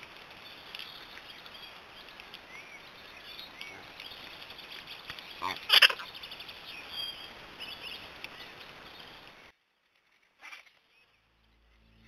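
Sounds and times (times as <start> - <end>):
steady outdoor hiss: 0.0 - 12.0
birds chirping: 0.2 - 9.5.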